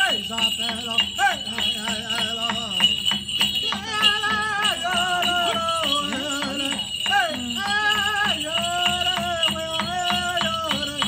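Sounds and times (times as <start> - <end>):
jingling bells: 0.0 - 11.0
person chanting a song: 0.0 - 11.0
steady drumbeat: 0.0 - 11.0.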